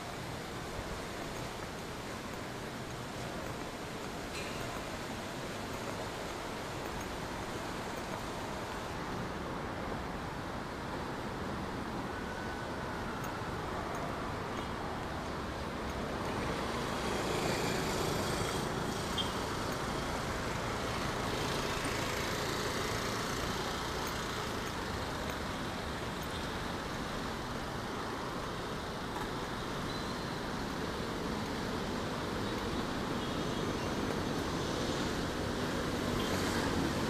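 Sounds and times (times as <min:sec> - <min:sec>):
cars and motorcycles passing: 0:15.3 - 0:27.8, 0:28.4 - 0:37.0.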